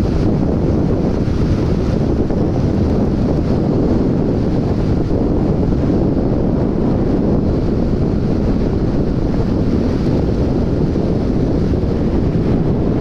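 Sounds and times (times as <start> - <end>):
wind roar on microphone: 0.0 - 13.0.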